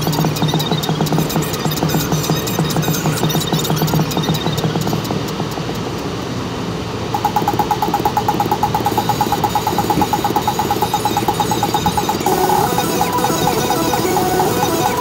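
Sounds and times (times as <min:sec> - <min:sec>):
fast even pulsing: 0:07.1 - 0:15.0.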